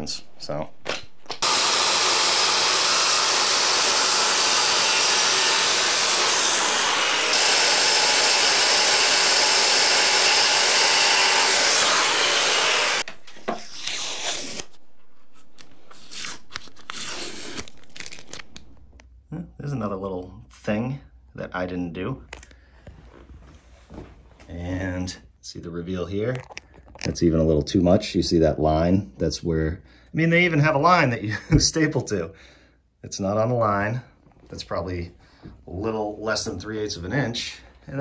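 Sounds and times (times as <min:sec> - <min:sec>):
circular saw cutting wood: 0:01.4 - 0:18.5.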